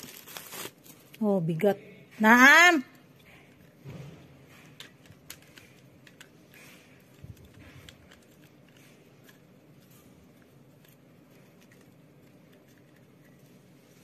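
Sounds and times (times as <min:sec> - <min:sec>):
plastic clicks: 0:04.8 - 0:09.4.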